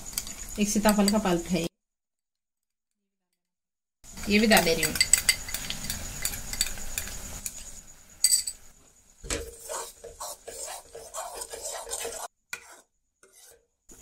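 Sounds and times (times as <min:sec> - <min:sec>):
metal spoon clinking and scraping pan: 0:00.1 - 0:01.3, 0:04.2 - 0:08.7, 0:09.3 - 0:14.0
syrup bubbling and sizzling: 0:04.1 - 0:08.2.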